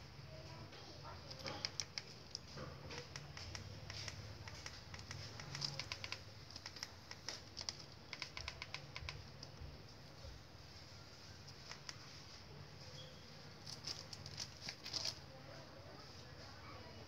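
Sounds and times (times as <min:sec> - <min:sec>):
remote control buttons clicking: 0:03.0 - 0:09.6.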